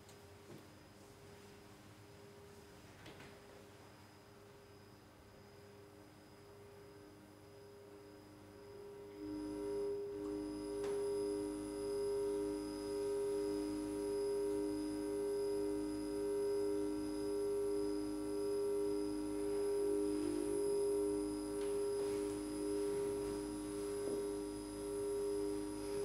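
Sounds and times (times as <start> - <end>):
pulsing low electronic tone: 6.8 - 26.0
steady electronic tones: 8.0 - 26.0.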